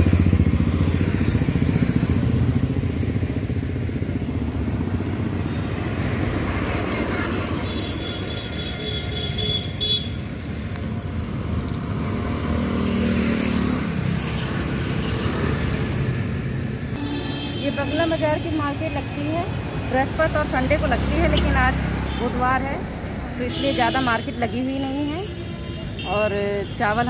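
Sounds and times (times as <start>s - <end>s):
motorcycles and vehicles passing: 0.0s - 27.0s
high-pitched horn toot: 17.0s - 18.2s.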